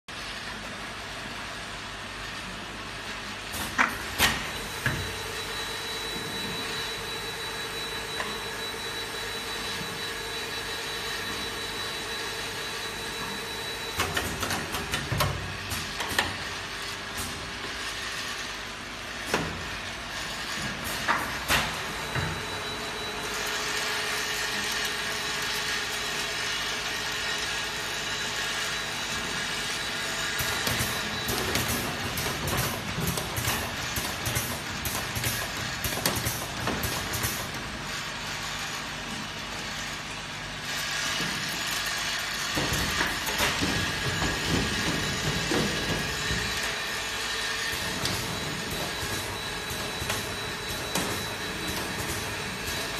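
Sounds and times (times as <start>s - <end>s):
pump whine: 3.5s - 52.9s
machine humming: 4.0s - 16.6s, 40.1s - 52.9s
pneumatic cylinders clacking: 30.4s - 37.6s, 42.5s - 47.0s, 47.6s - 52.9s.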